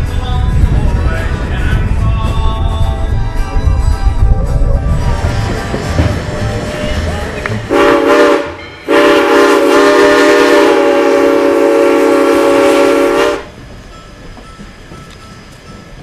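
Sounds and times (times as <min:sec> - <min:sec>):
train running noise: 0:00.0 - 0:16.0
steam locomotive whistle: 0:07.7 - 0:13.6.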